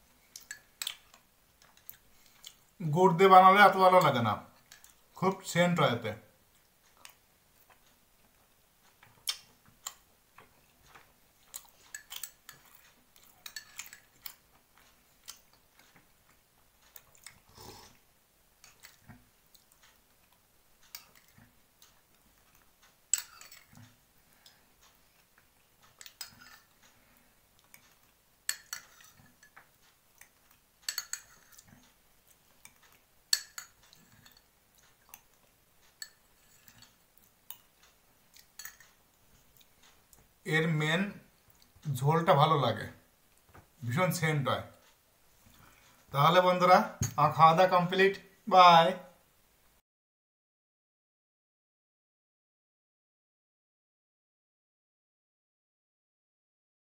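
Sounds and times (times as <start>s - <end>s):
mouth sounds of eating: 8.9s - 28.2s.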